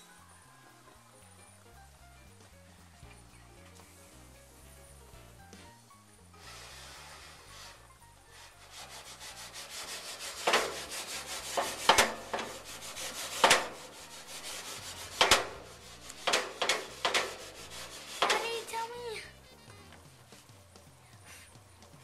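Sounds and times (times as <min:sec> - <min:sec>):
pot scraping on metal grate: 0:06.4 - 0:19.5
pot knocking on grate: 0:10.2 - 0:18.7.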